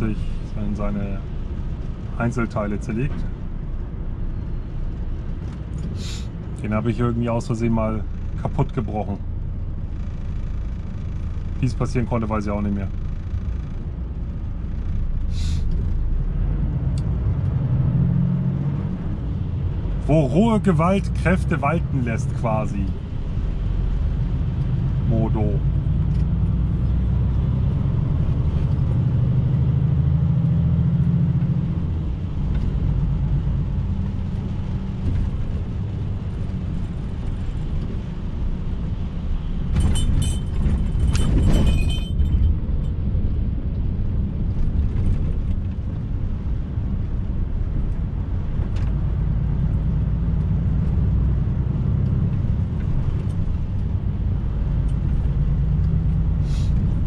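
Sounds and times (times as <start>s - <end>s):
lorry engine rumble from cab: 0.0s - 17.7s, 18.6s - 57.0s
metallic rattling clatter: 39.7s - 43.0s.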